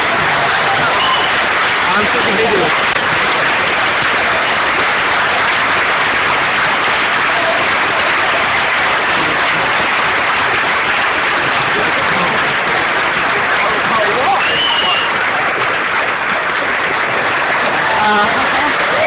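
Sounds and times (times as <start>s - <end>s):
large audience applauding: 0.0s - 19.0s.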